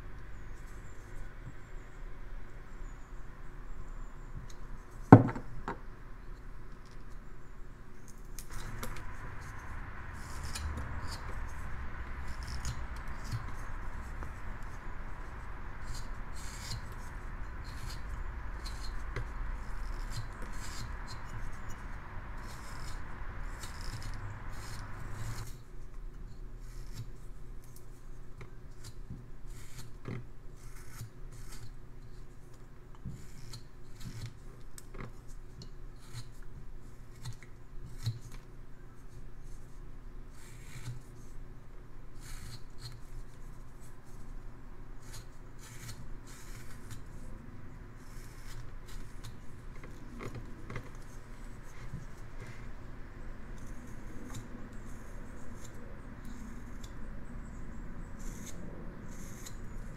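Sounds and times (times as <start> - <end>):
knife slicing wood chips: 12.2 - 14.8, 15.8 - 25.6.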